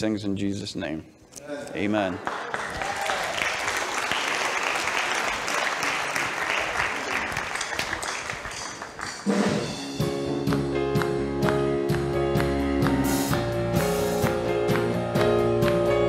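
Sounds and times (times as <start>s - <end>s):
congregation applauding: 2.0s - 9.8s, 10.5s - 16.0s
worship band playing: 4.9s - 16.0s.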